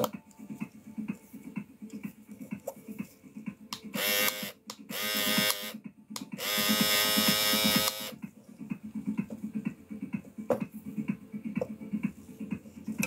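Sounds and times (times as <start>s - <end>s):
soft background music: 0.0s - 13.0s
electric clipper motor buzzing: 4.0s - 5.8s, 6.4s - 8.2s.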